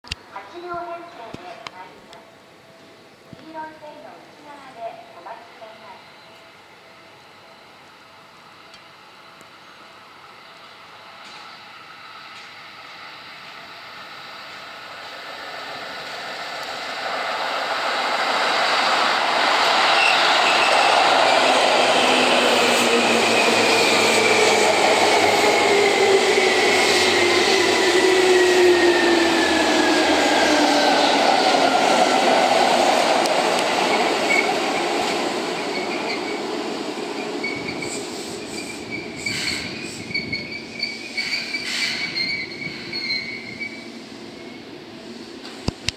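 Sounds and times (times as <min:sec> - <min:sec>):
wheel and brake squeal: 0:19.9 - 0:20.9, 0:37.4 - 0:44.7.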